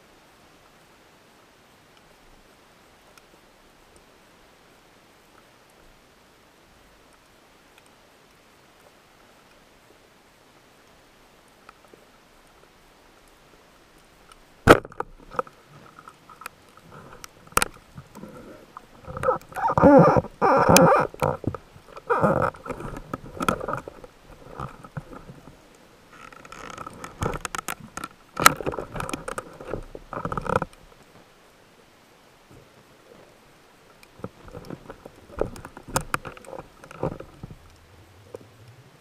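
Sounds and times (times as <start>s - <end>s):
sharp underwater clicks: 14.0s - 25.3s, 26.2s - 30.8s
underwater knocking and rumbling: 14.7s - 30.9s, 34.2s - 38.8s.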